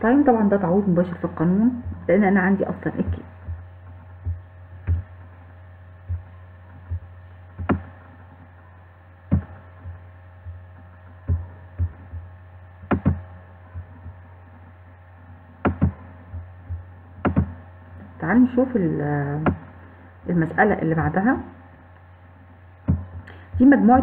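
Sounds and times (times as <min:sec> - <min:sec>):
low electrical hum: 0:00.0 - 0:24.0
soft knocks and clicks: 0:12.8 - 0:14.2, 0:15.6 - 0:17.6.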